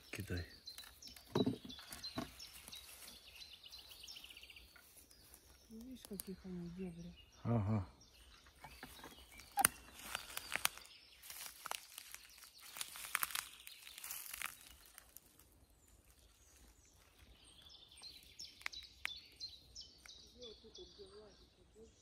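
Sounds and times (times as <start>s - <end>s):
leaves and twigs crackling underfoot: 0.0s - 6.9s, 8.2s - 21.3s
small bird chirping: 0.0s - 22.0s
twig cracking: 5.8s - 6.3s, 8.8s - 17.1s, 18.0s - 20.3s.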